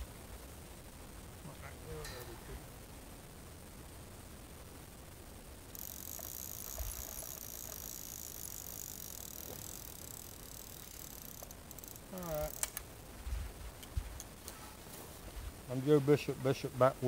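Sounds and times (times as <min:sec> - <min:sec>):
insects calling: 0:05.7 - 0:13.1
sharp clicks: 0:05.8 - 0:12.9.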